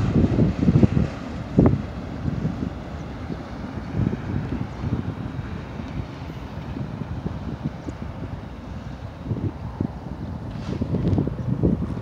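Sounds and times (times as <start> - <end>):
freight train cars rumbling: 0.0 - 12.0
wind buffeting microphone: 0.0 - 12.0.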